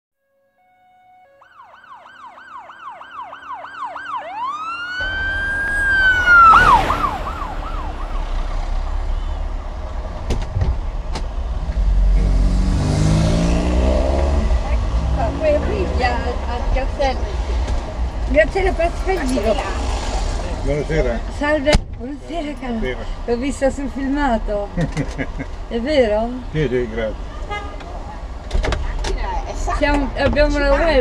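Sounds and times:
emergency vehicle siren: 0.6s - 10.2s.

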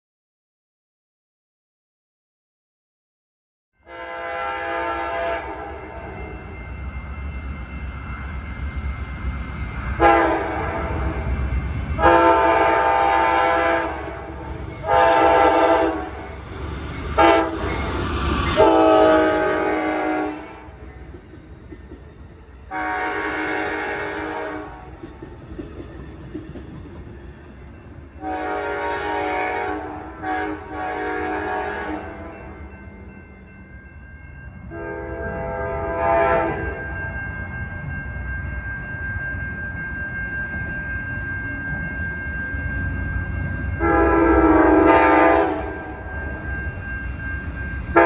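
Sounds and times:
train air horn blasts: 3.8s - 6.4s, 10.0s - 11.4s, 12.0s - 16.3s, 17.2s - 17.7s, 18.6s - 20.8s, 22.7s - 25.0s, 28.2s - 32.6s, 34.7s - 36.8s, 43.8s - 46.1s
train rumbling past: 3.8s - 48.0s.

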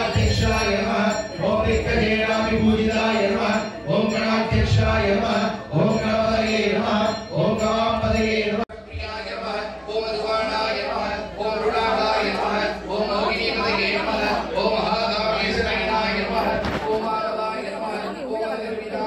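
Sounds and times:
voices chanting: 0.0s - 19.0s.

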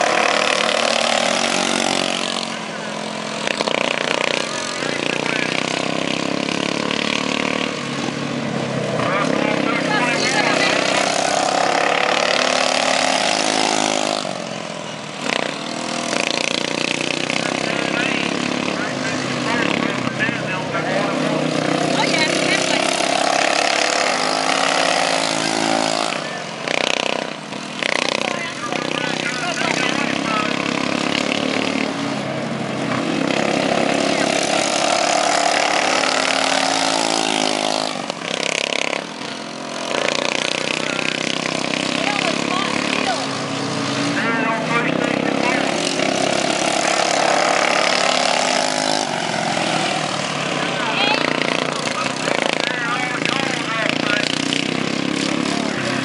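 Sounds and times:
lawn mower engines buzzing: 0.0s - 56.0s.

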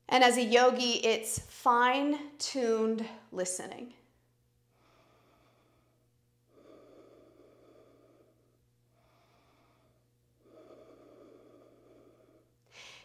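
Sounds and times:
low room hum: 0.0s - 13.0s
slow breathing: 4.6s - 13.0s.

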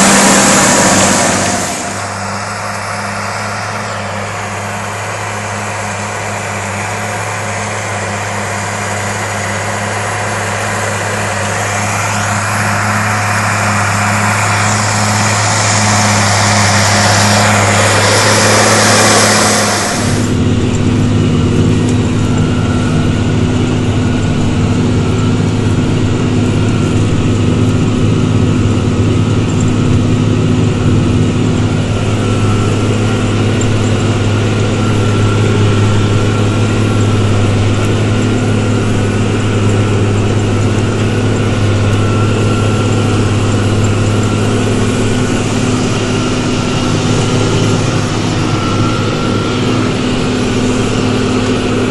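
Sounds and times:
rough outdoor engine and wind: 0.0s - 51.9s
tractor engine drone in cab: 0.0s - 51.9s.

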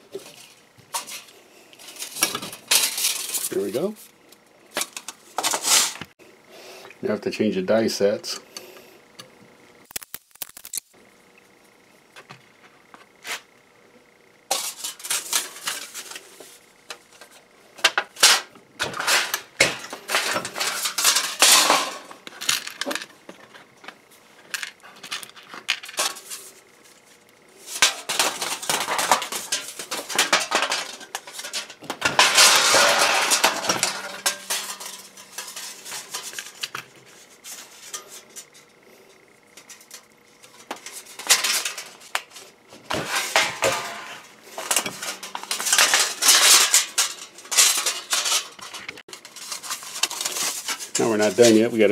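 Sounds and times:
metal dies clinking and rattling: 43.1s - 51.6s.

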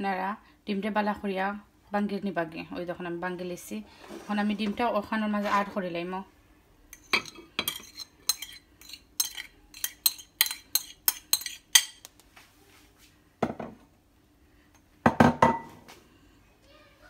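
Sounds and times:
metal spoon clinking on plate: 7.0s - 12.0s.

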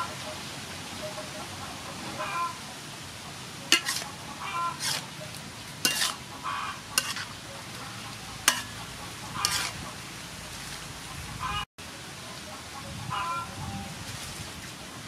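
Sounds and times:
food sizzling in a wok: 3.0s - 10.4s
spatula clacking on a pan: 3.7s - 5.1s, 5.8s - 6.3s, 6.9s - 7.4s, 8.1s - 9.8s
metal spatula scraping a pan: 3.7s - 9.9s.

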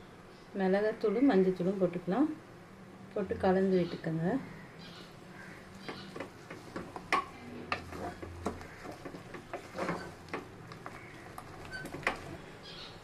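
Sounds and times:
wooden spatula knocking on pot: 5.8s - 12.3s.

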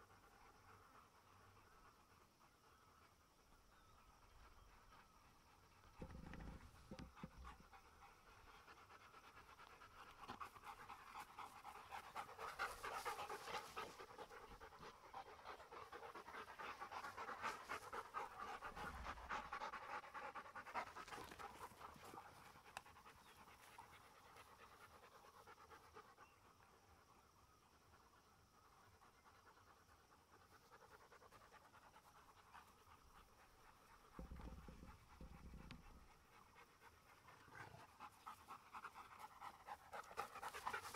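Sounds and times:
dog panting: 4.1s - 27.1s, 27.8s - 40.9s.

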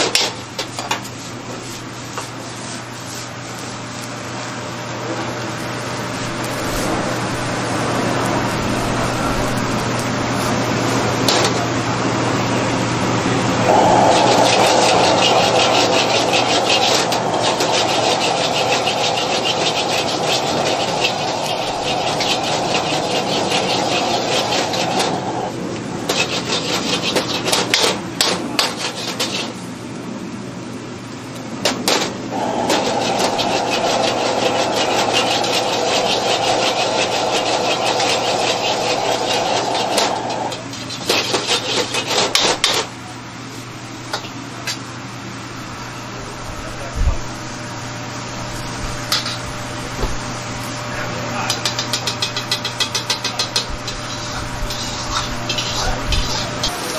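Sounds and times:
gas burner roaring: 0.0s - 56.9s
metal ladle scraping a wok: 13.7s - 25.3s, 32.4s - 42.7s, 51.6s - 56.9s.

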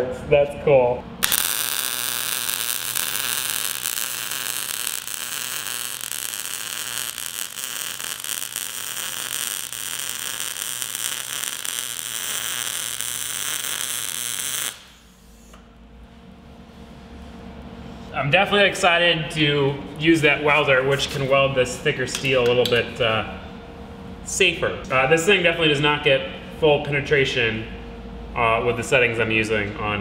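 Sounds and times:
faint hum: 0.0s - 30.0s
welding arc crackling hiss: 1.2s - 15.6s.

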